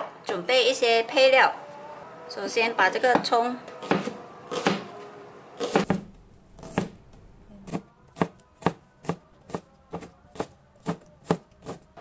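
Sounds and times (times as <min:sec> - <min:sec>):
knife chopping on cutting board: 0:05.6 - 0:11.9.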